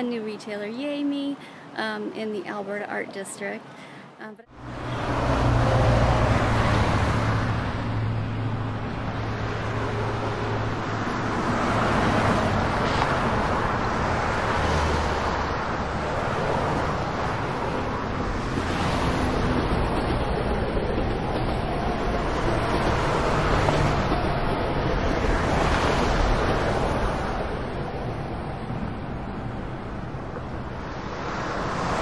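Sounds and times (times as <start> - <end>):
road traffic noise: 0.0 - 32.0.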